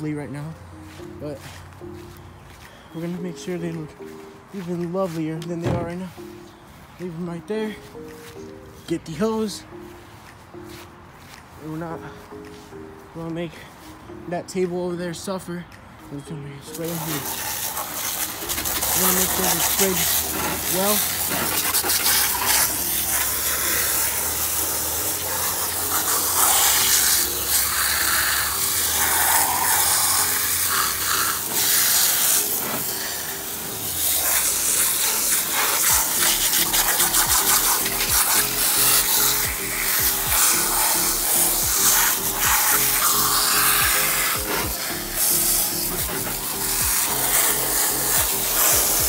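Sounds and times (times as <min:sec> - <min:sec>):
hose spraying water with splashing: 0:01.0 - 0:06.4, 0:16.6 - 0:49.0
music with repeating beat: 0:34.4 - 0:49.0.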